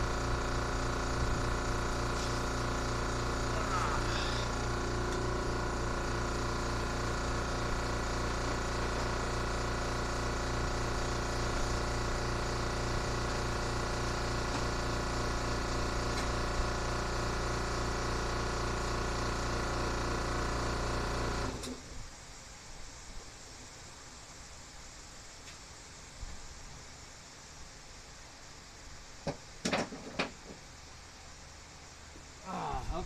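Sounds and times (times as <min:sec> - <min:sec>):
air compressor running: 0:00.0 - 0:23.5.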